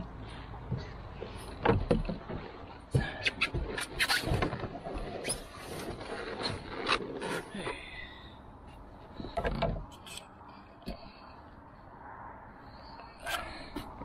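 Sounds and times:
canoe hull knocking and scraping: 0:00.6 - 0:07.8, 0:09.1 - 0:10.1.

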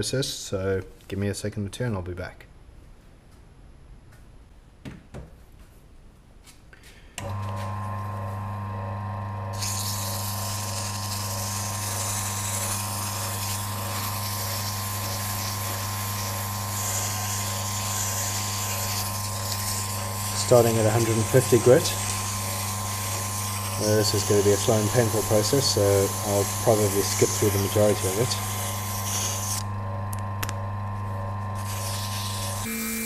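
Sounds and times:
wood lathe motor hum: 0:07.2 - 0:33.0
sandpaper hissing on wood: 0:09.6 - 0:29.6, 0:31.0 - 0:32.7.

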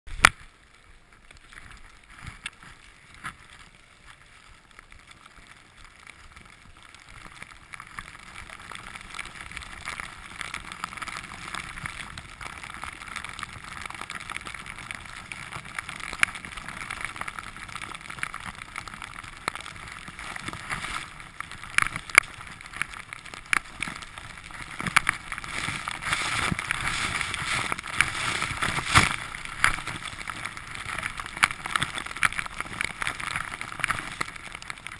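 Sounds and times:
skis hissing through snow: 0:25.4 - 0:29.4.

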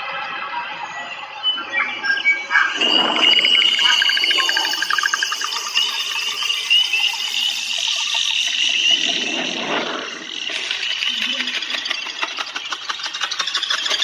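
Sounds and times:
frog-like chirps and trills: 0:01.0 - 0:14.0.

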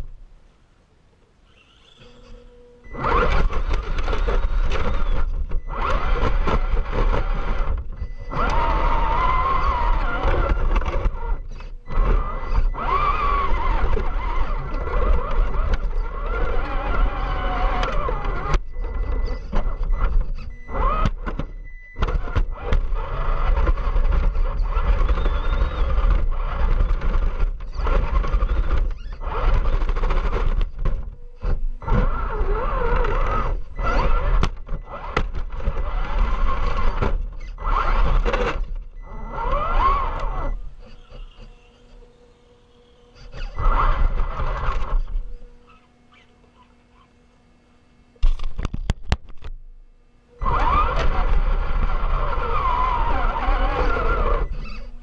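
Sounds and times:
electric motor whining: 0:01.4 - 0:55.0
chassis rumbling over rocks: 0:02.9 - 0:41.6, 0:50.4 - 0:55.0.

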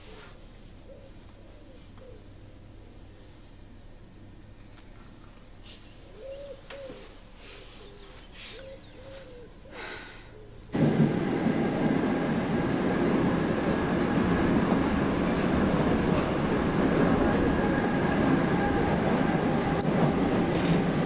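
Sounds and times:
faint cooing calls: 0:00.1 - 0:02.4, 0:06.0 - 0:10.7
train carriage running noise: 0:10.6 - 0:21.0.

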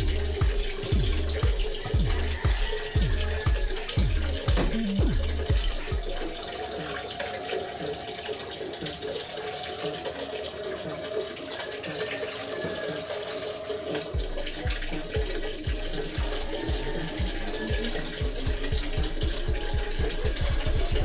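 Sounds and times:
low thumps: 0:00.0 - 0:06.2
water running from a tap: 0:00.0 - 0:21.0.

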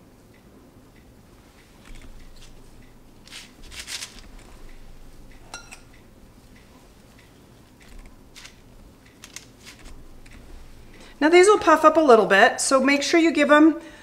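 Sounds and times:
metal spoons clinking on glass bowl: 0:05.4 - 0:05.9.

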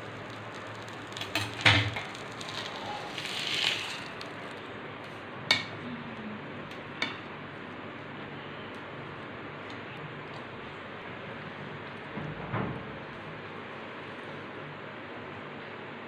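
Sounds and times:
metal spatula scraping a frying pan: 0:03.0 - 0:04.1.

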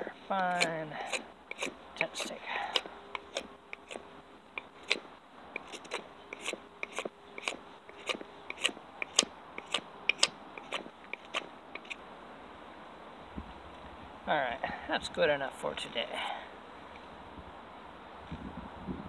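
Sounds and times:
knife scraping wood: 0:00.0 - 0:12.0.

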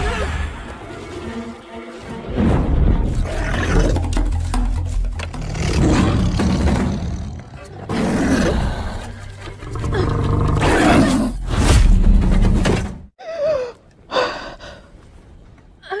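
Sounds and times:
mountain lion snarling and roaring: 0:05.3 - 0:11.6.

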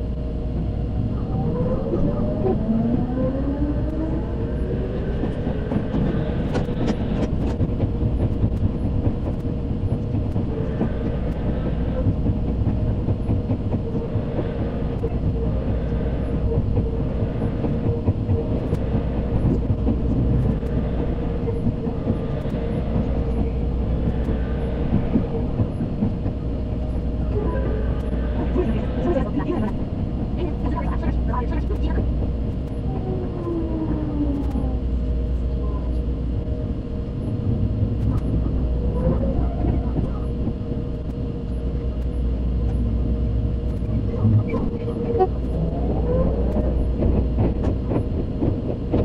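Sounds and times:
electric train motor whine: 0:00.0 - 0:30.4
wheels rumbling on rail: 0:00.0 - 0:49.0.

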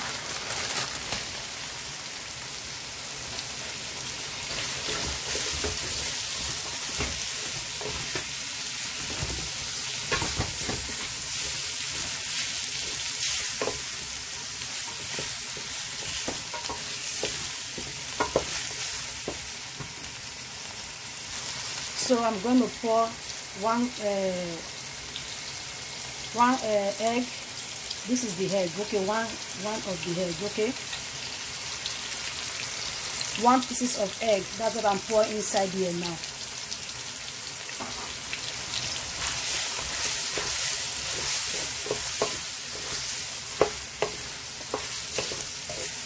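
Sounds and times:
food sizzling in a pot: 0:00.0 - 0:46.0
wooden spoon scraping a pot: 0:39.1 - 0:46.0.

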